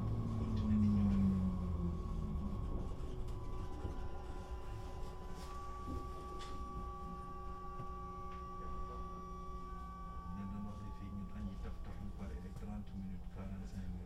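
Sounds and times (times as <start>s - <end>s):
electrical hum with high tones: 0.0s - 14.0s.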